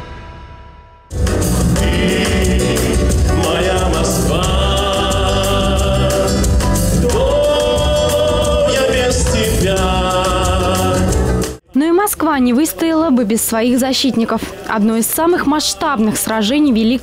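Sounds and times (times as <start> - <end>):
instrumental backing with beat: 1.1 - 11.6
man singing into microphone: 1.4 - 11.5.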